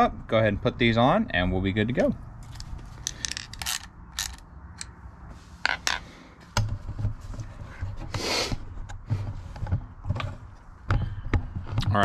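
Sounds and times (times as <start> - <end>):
wrench clicking on metal nuts: 3.0 - 4.9.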